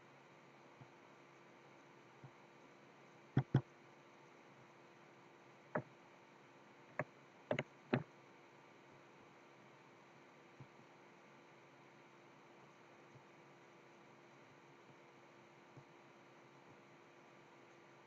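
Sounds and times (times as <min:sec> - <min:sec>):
faint steady hiss: 0:00.0 - 0:18.0
keyboard clicks: 0:03.4 - 0:03.7, 0:07.0 - 0:08.1
mouse clicks: 0:03.4 - 0:03.7, 0:06.9 - 0:08.1.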